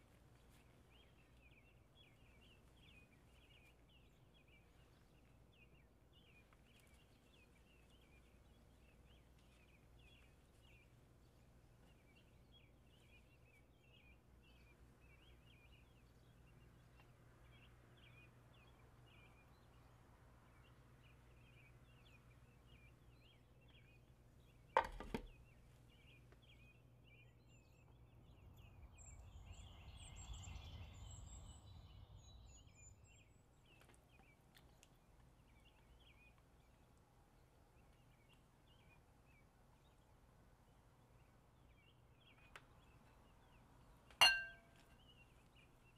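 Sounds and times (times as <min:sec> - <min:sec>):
glass lid knocking on steel pan: 0:44.2 - 0:44.6
faint high chirping: 0:44.2 - 0:44.9.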